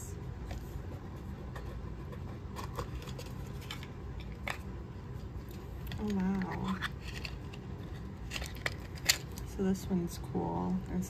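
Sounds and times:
steady low hum: 0:00.0 - 0:11.0
cardboard clicks and rustles: 0:00.4 - 0:04.7, 0:05.4 - 0:09.5.

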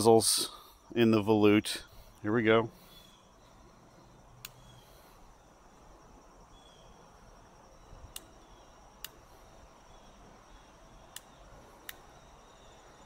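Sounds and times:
faint insect chirping: 0:00.0 - 0:13.0.

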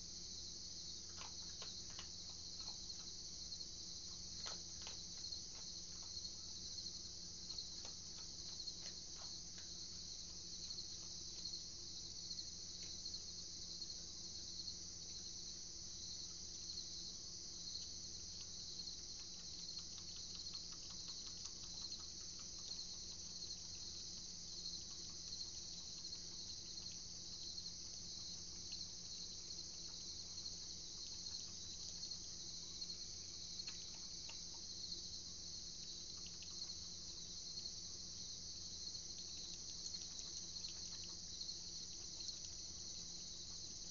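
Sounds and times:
crickets chirping: 0:00.0 - 0:43.9
faint clicks: 0:17.8 - 0:27.1.

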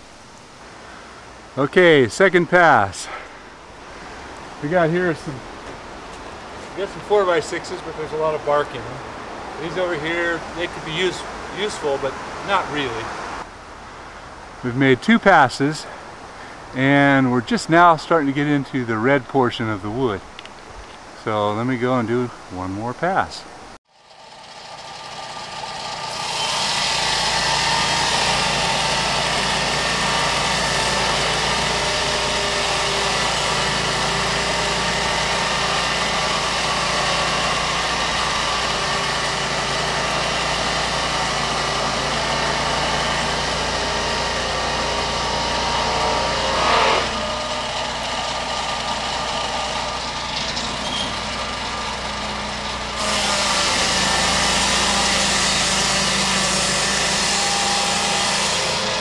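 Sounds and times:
circular saw blade cutting log: 0:24.0 - 0:59.0
sawmill engine running under load: 0:24.0 - 0:59.0.

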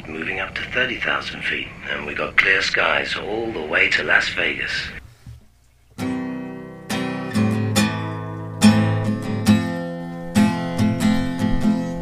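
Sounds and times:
acoustic guitar strumming chords: 0:02.7 - 0:12.0.

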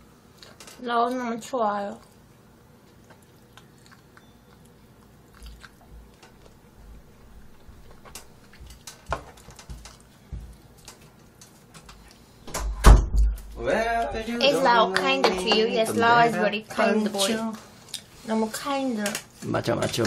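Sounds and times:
person chewing and biting: 0:02.8 - 0:06.7.

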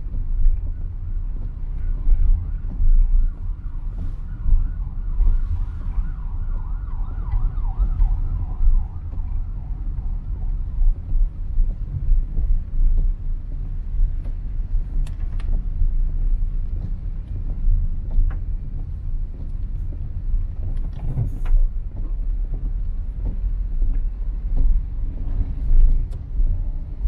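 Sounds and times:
low rumble of traffic: 0:00.0 - 0:27.0
siren wailing: 0:01.8 - 0:11.1.

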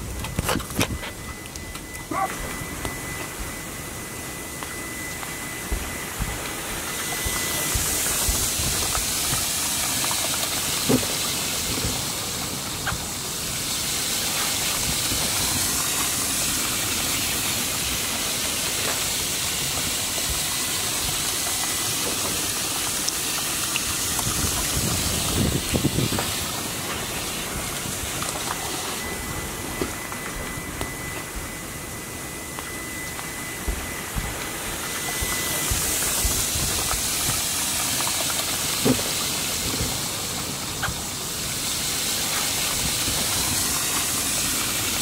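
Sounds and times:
water jetting from hose into tub: 0:00.0 - 0:45.0.

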